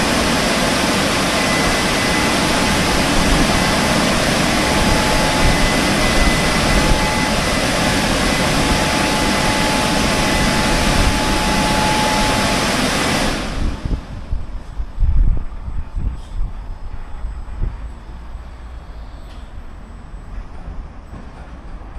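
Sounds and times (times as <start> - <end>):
air dryer blowers rushing: 0.0 - 14.8
faint high whine: 0.0 - 21.3.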